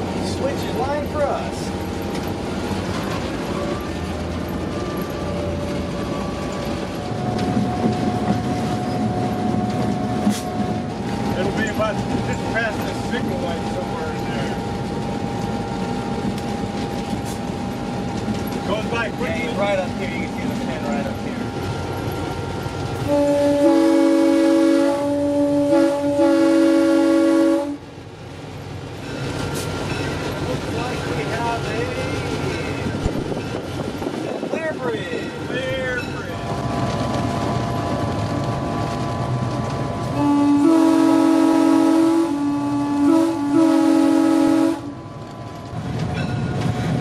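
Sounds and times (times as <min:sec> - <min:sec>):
locomotive diesel engine running: 0:00.0 - 0:47.0
wheel-on-rail noise: 0:00.0 - 0:47.0
locomotive air horn: 0:23.0 - 0:27.8, 0:40.1 - 0:45.0.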